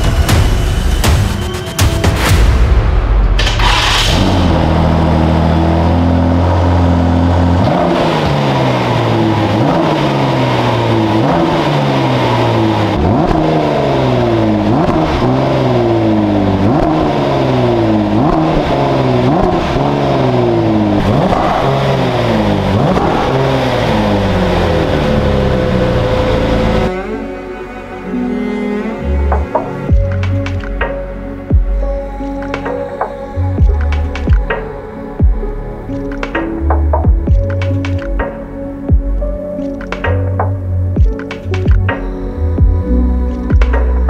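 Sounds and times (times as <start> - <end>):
engine revving: 3.2 - 31.6
car engine idling: 3.4 - 44.0.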